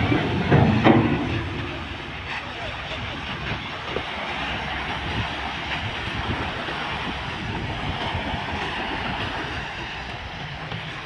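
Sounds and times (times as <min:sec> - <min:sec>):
wind rumbling on microphone: 0:00.0 - 0:11.0
small waves breaking on sand: 0:02.3 - 0:11.0.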